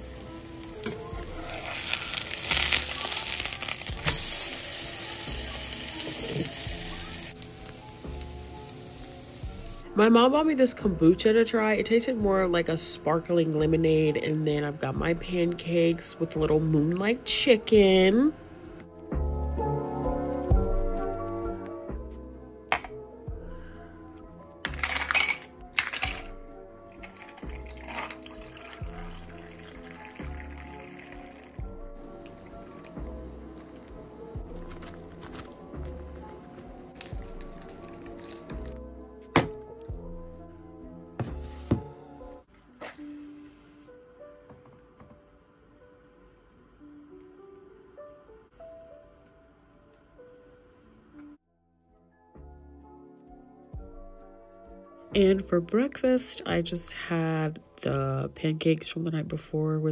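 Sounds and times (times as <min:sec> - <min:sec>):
pancake sizzling in oil: 0:00.0 - 0:09.9
background music: 0:00.0 - 0:59.9
drink pouring over ice: 0:00.2 - 0:07.8, 0:26.9 - 0:38.8
glass set down on stone: 0:22.7 - 0:23.0
ice cubes clinking in glass: 0:24.6 - 0:26.3, 0:27.0 - 0:28.8, 0:37.0 - 0:38.6.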